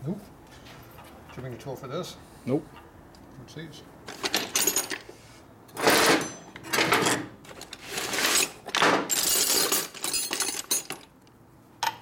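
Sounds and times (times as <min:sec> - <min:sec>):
metal tools clattering: 0:04.1 - 0:05.1, 0:05.8 - 0:11.1.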